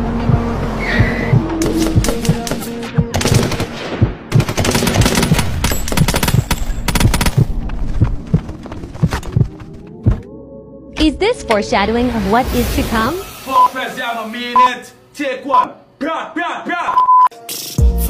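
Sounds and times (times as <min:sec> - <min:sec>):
rapid gunshots: 0:01.6 - 0:07.6.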